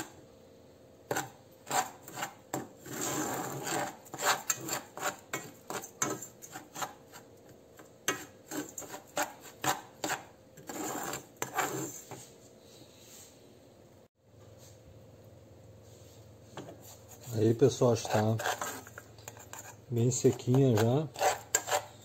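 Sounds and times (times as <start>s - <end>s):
spoon scraping soil in saucepan: 1.1s - 12.3s, 16.1s - 22.0s.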